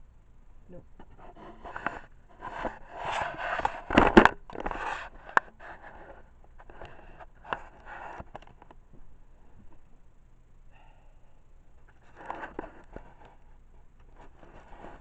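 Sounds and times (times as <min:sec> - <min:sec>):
fingers rubbing on phone: 0:01.0 - 0:03.9, 0:14.1 - 0:15.0.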